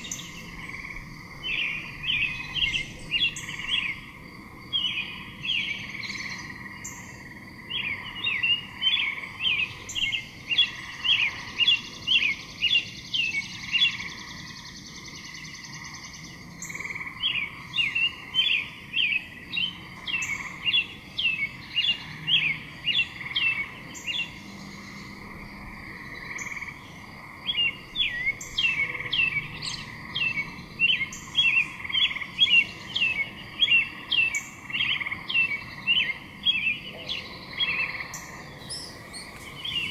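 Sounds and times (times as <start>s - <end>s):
small animal chirping: 38.6s - 39.9s.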